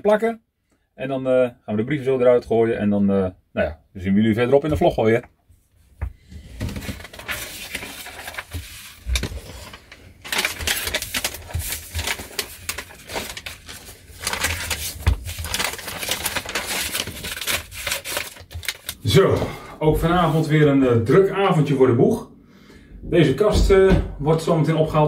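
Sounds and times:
paper rustling: 0:06.3 - 0:20.6.

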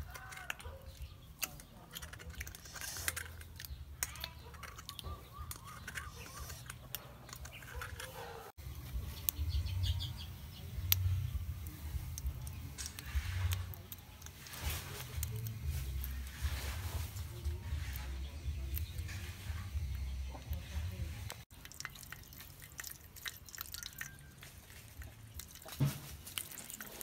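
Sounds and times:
metal spoon scraping a can: 0:00.0 - 0:08.5.

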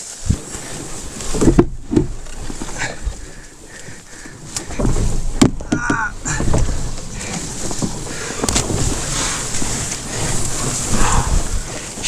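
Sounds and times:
canoe hull knocking and scraping: 0:00.0 - 0:12.0
man grunting and breathing hard: 0:05.7 - 0:07.4.

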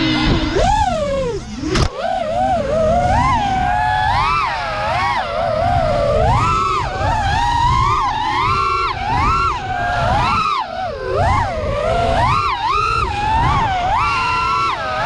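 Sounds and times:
quadcopter motors whining: 0:00.0 - 0:15.0
wind buffeting microphone: 0:00.0 - 0:15.0.

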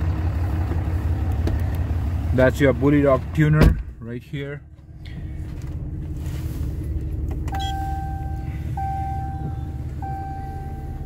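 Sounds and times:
low steady rumble: 0:00.0 - 0:11.0
dashboard warning chime: 0:07.5 - 0:11.0.

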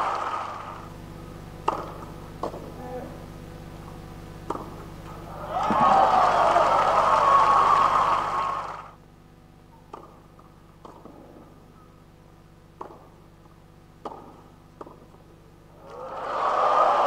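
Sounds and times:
crowd applause: 0:00.0 - 0:00.8, 0:05.3 - 0:09.0, 0:15.8 - 0:17.0
tennis ball struck with racket: 0:01.6 - 0:02.7, 0:04.5 - 0:04.7, 0:12.8 - 0:13.1, 0:14.0 - 0:15.0.

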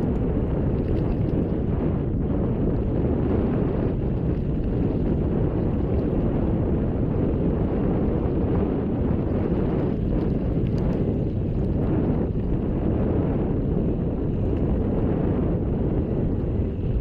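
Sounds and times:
wind buffeting microphone: 0:00.0 - 0:17.0
faint ticks: 0:00.1 - 0:01.6, 0:09.7 - 0:11.8.

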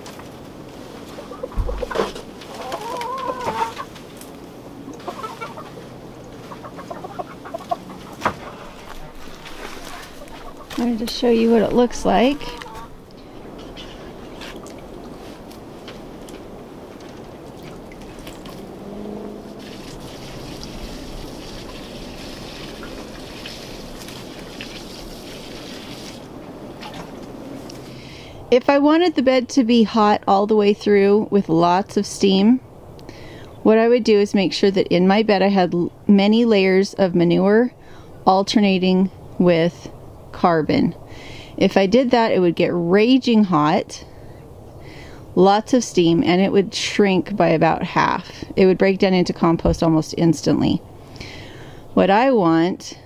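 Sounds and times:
chickens clucking: 0:01.0 - 0:04.1, 0:04.8 - 0:15.2
dull thump: 0:01.5 - 0:02.2
water pouring onto straw: 0:19.6 - 0:27.2.

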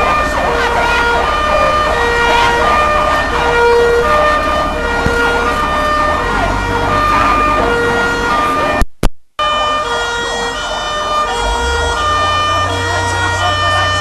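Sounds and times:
two-tone fire truck siren: 0:00.0 - 0:08.8, 0:09.4 - 0:14.0.

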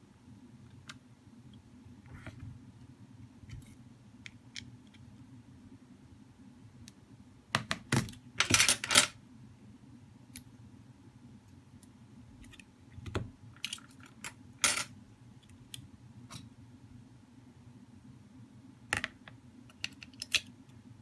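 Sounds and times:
steady low hum: 0:00.0 - 0:21.0
plastic parts clicking and clattering: 0:07.6 - 0:09.2.

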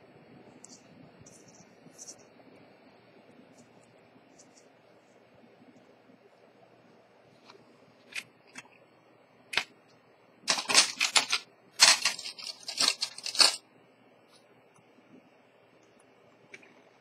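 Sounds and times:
rapid dry clicking: 0:10.5 - 0:13.6.

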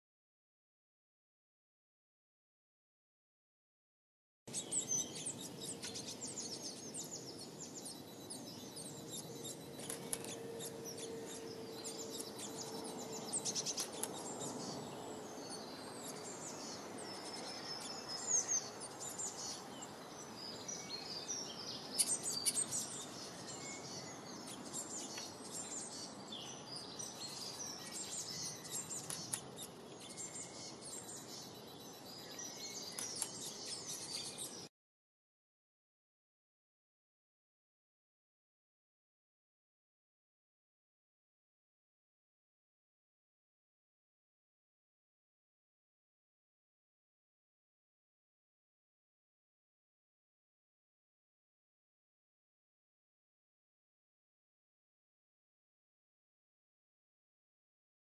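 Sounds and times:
small birds chirping: 0:04.5 - 0:34.7.

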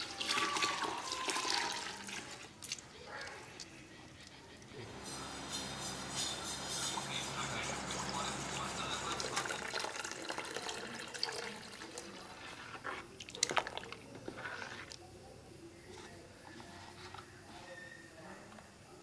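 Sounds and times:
liquid pouring: 0:00.0 - 0:02.8, 0:07.7 - 0:14.7
steady low hum: 0:03.8 - 0:09.8
liquid stirred in steel bowl: 0:05.4 - 0:18.0.

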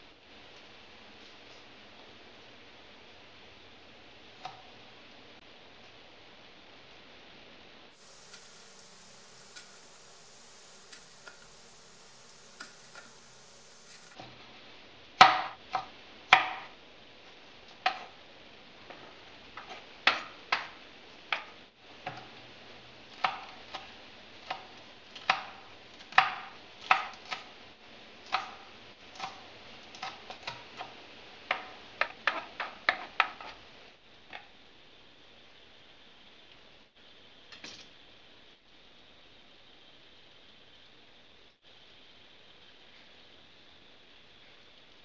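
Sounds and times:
knife chopping on wooden board: 0:08.0 - 0:14.2.

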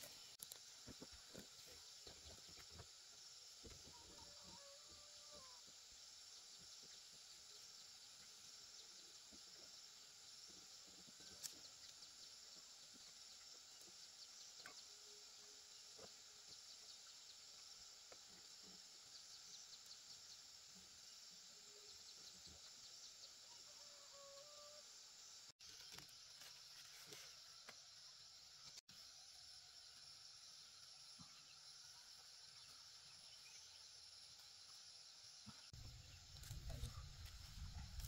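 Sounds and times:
insects chirping faintly: 0:00.0 - 0:38.0.

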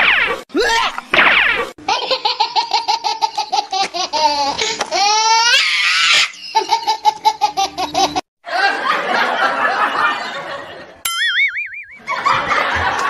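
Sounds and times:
high-pitched laughing: 0:01.8 - 0:08.9.

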